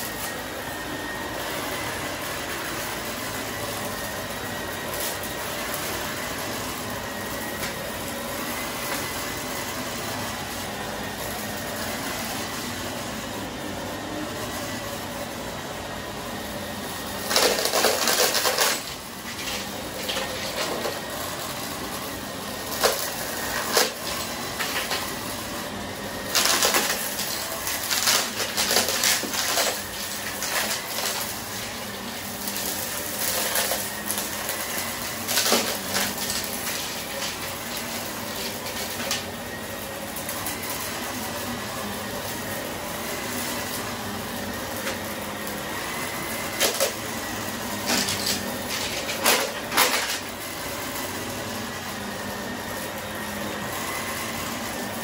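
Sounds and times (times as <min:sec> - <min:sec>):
vacuum cleaner running: 0:00.0 - 0:55.0
confetti crackling in vacuum: 0:17.2 - 0:21.5, 0:26.2 - 0:51.2.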